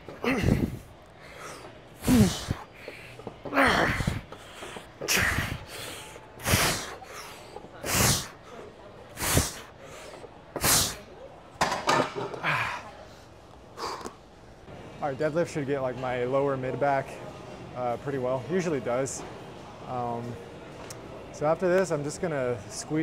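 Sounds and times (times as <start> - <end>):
man exhaling forcefully: 0.2 - 0.8, 2.0 - 2.6, 3.6 - 4.3, 5.1 - 5.8, 6.4 - 7.0, 7.8 - 8.3, 9.2 - 9.7.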